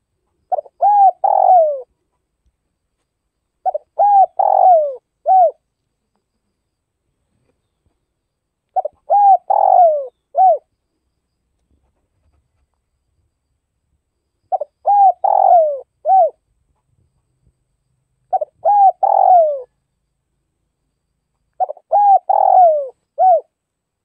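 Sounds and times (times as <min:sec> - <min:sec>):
dove cooing: 0:00.0 - 0:02.1, 0:03.6 - 0:05.6, 0:08.8 - 0:10.7, 0:14.5 - 0:16.4, 0:18.3 - 0:19.8, 0:21.6 - 0:23.6.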